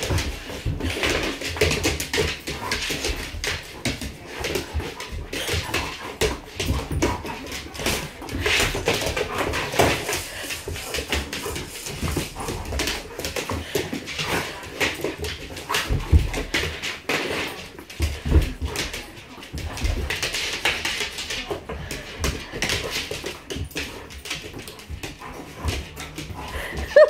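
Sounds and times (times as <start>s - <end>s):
knocks and scuffles of dogs: 0.0s - 27.0s.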